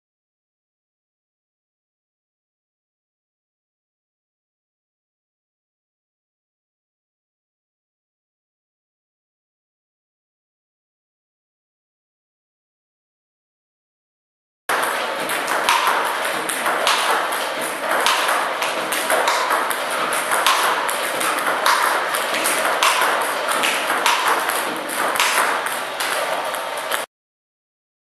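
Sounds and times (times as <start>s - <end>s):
table tennis balls clicking: 14.7s - 27.1s.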